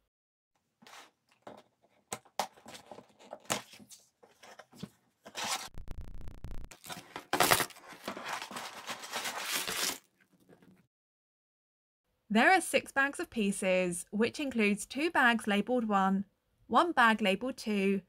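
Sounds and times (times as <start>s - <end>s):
cardboard tearing: 6.7s - 10.1s
plastic bags crinkling: 6.7s - 10.1s.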